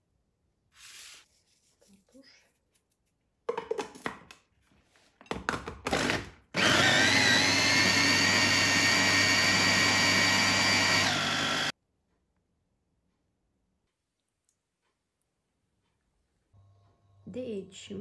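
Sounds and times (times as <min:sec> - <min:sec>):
electric blender running: 0:05.9 - 0:11.7.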